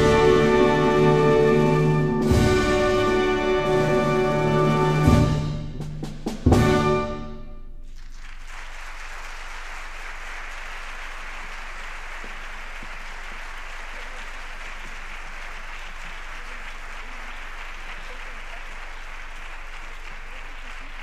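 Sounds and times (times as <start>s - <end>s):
symphonic band playing a march: 0.0s - 7.5s
audience applause: 7.9s - 21.0s.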